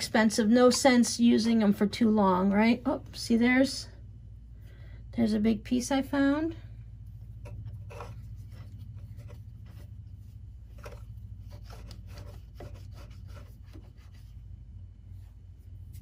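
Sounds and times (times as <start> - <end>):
pipe cleaner scraping metal: 7.4 - 9.9.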